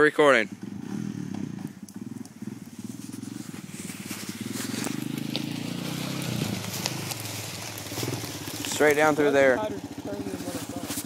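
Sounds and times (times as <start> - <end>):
quad bike engine running: 0.0 - 11.0.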